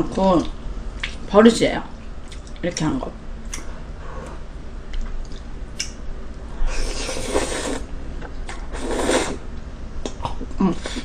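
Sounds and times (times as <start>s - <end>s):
slurping noodles: 6.7s - 7.9s, 8.6s - 9.4s.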